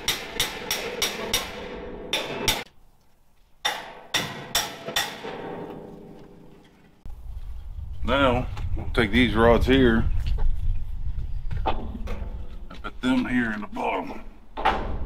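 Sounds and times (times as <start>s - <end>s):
hammer striking steel tailgate: 0.0s - 2.7s, 3.6s - 6.3s.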